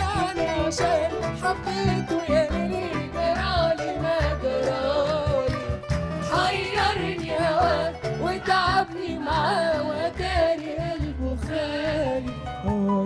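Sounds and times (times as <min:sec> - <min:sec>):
choir singing: 0:00.0 - 0:12.4
band playing steady beat: 0:00.0 - 0:12.9.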